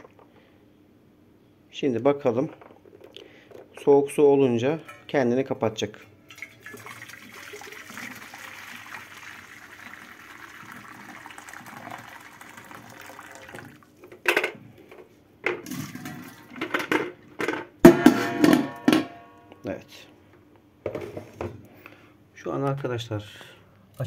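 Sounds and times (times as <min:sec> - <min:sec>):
kettle and bowl clanking: 0:05.9 - 0:14.6, 0:15.5 - 0:19.2
water pouring into steel bowl: 0:06.3 - 0:13.9.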